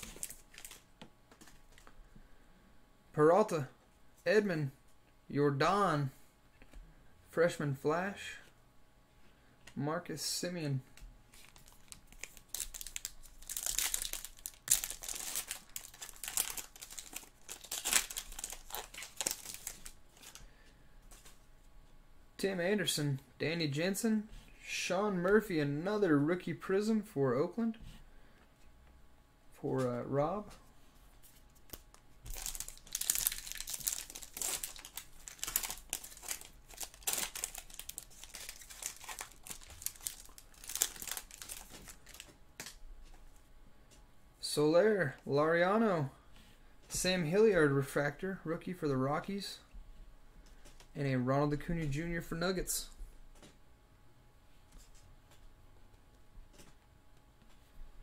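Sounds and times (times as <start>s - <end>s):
wrapper torn and crumpled: 0.0s - 0.8s, 11.4s - 20.4s, 31.7s - 42.8s.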